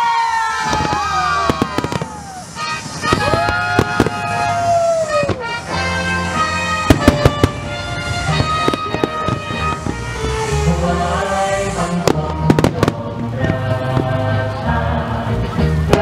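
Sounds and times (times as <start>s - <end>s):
fireworks bursting bangs: 0.2s - 14.7s, 15.8s - 16.0s
music with held gliding notes: 3.8s - 16.0s.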